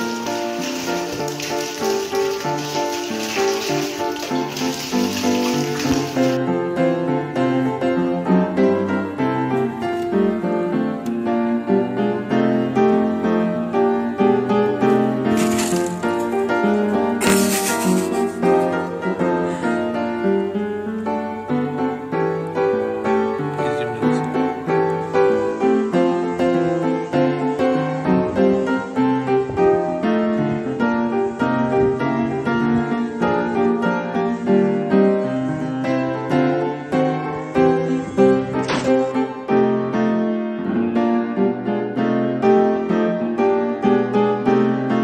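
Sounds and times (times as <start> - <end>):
water hissing in bathtub: 0.0 - 6.4, 17.2 - 19.8
piano music: 0.0 - 45.0.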